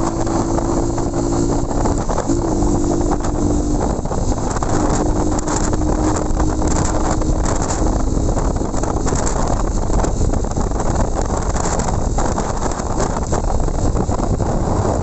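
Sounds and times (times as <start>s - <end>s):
motorcycle engine running: 0.0s - 15.0s
wind buffeting microphone: 0.0s - 15.0s.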